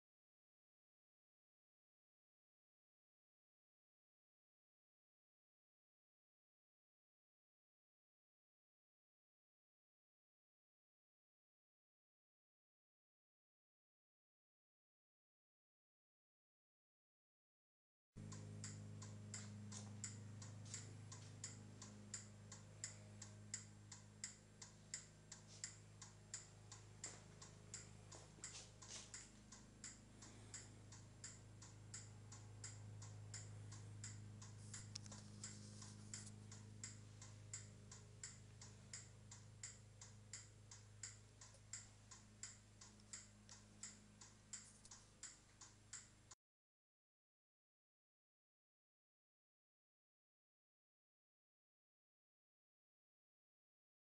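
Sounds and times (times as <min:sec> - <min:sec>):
faint low hum: 0:18.2 - 0:46.4.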